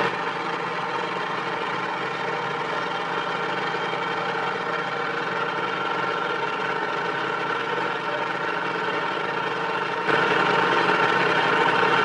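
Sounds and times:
motor engine idling: 0:00.0 - 0:12.0.

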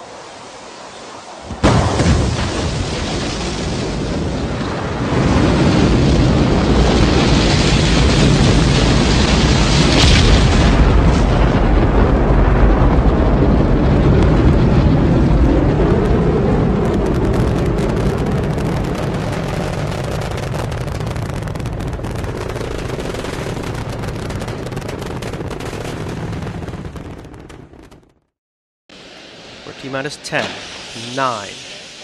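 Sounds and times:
rocket exhaust roar: 0:00.0 - 0:28.3, 0:28.9 - 0:32.0
crackling: 0:12.8 - 0:28.3.

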